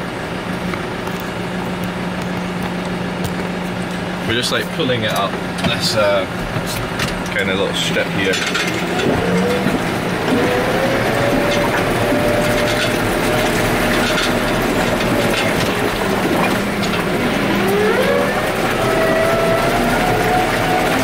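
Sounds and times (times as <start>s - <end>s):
tractor diesel engine running: 0.0s - 21.0s
engine whine rising in pitch: 7.8s - 21.0s.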